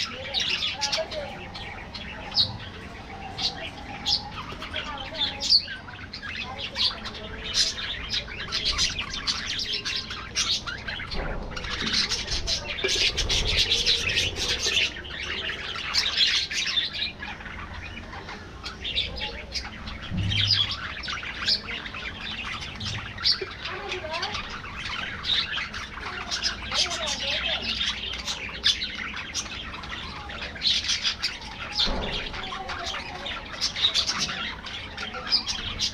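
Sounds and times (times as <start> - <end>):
budgerigars chattering: 0.0 - 35.9.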